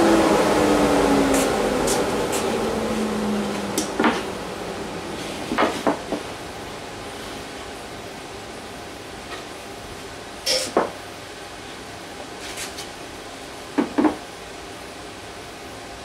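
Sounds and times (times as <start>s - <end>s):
steady background noise: 0.0s - 16.0s.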